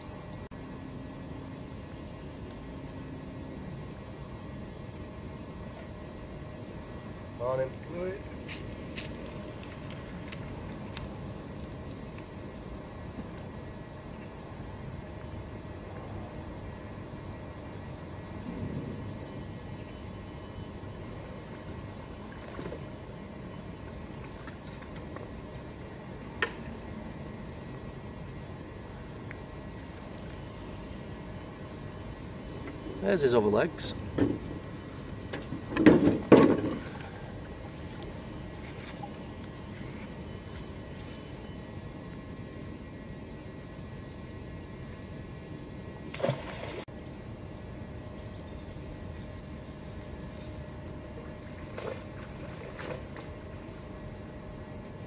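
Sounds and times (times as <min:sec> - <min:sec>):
magnet splashing into water: 0:46.1 - 0:46.8.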